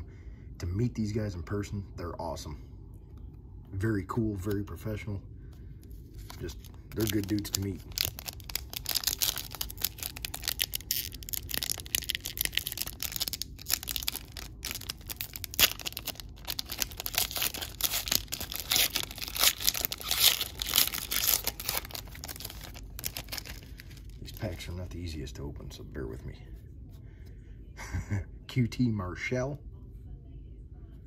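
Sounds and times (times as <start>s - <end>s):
foil wrapper crinkling and tearing: 6.2s - 24.6s.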